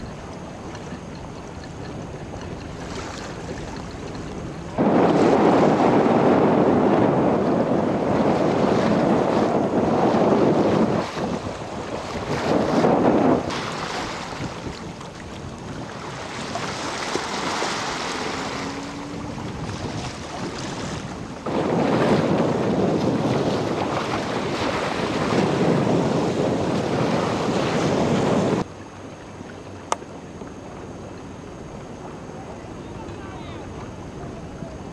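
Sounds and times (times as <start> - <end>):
wind buffeting microphone: 0.0 - 28.7
water rushing past boat: 0.0 - 34.9.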